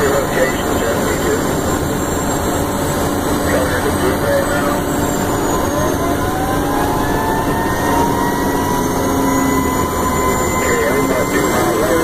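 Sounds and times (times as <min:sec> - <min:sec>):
vehicle engine and road noise: 0:00.0 - 0:12.0
siren wailing: 0:01.2 - 0:12.0.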